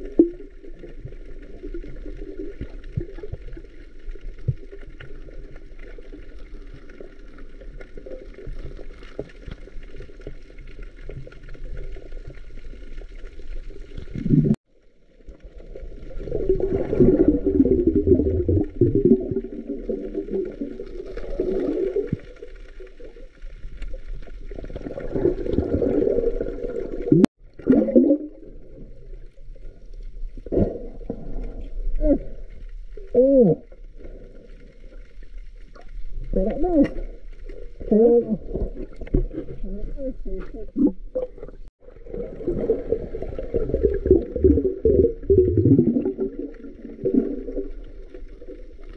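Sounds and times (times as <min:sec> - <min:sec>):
underwater hiss and hum: 0:00.0 - 0:48.9
bubbly bursts: 0:13.9 - 0:14.6, 0:15.8 - 0:22.5, 0:24.4 - 0:29.2, 0:36.2 - 0:48.9
water gurgling and churning: 0:15.4 - 0:29.7, 0:35.9 - 0:48.9.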